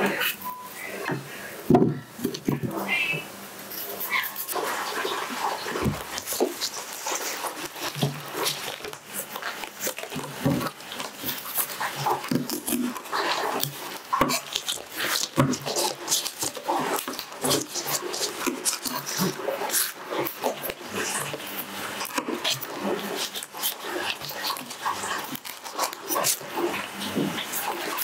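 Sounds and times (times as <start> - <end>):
short whining voice-like sounds: 1.9 - 4.5.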